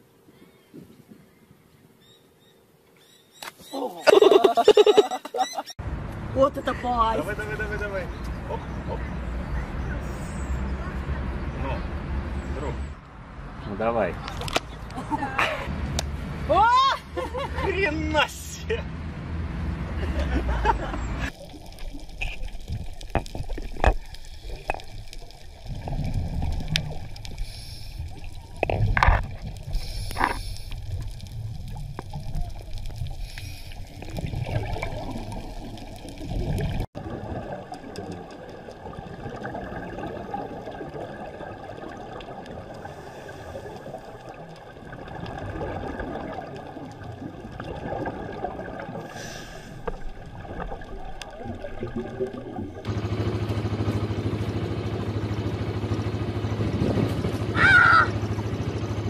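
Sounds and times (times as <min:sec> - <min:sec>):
splashy bursts: 0:21.2 - 0:54.3
steady underwater hiss: 0:21.3 - 0:28.9, 0:29.5 - 0:36.8, 0:42.7 - 0:44.4, 0:49.0 - 0:50.2
muffled underwater gurgling: 0:21.3 - 0:52.9.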